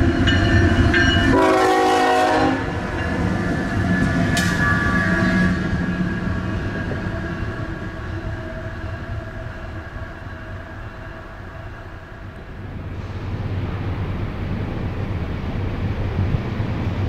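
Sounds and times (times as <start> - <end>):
distant train rumble: 0.0 - 17.0
train horn: 1.3 - 3.0.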